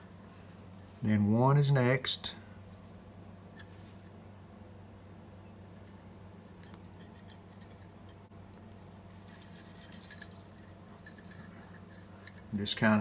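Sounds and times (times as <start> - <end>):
steady low hum: 0.0 - 13.0
wire handling ticks and rustles: 4.8 - 13.0.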